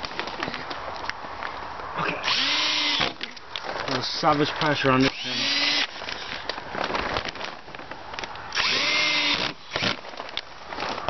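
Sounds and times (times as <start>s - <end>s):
clicks and handling noise: 0.0s - 1.6s, 3.0s - 8.6s, 9.4s - 11.0s
power drill driving a screw: 2.2s - 3.2s, 5.0s - 6.0s, 8.5s - 10.0s.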